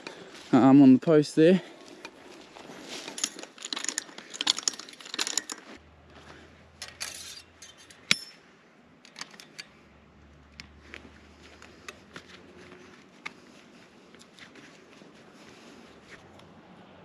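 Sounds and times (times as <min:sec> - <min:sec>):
footsteps through dry grass: 0:00.0 - 0:03.7, 0:10.6 - 0:16.3
fencing wire clinking and rattling: 0:01.9 - 0:05.8, 0:06.7 - 0:09.9.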